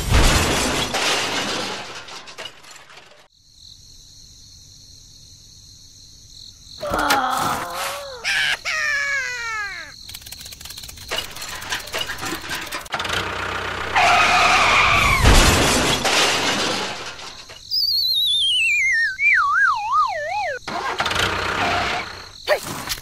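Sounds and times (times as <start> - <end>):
rapid clatter of clicks: 10.0 - 12.9
wavering falling whistle: 17.7 - 20.6
falling whistles: 17.7 - 20.7.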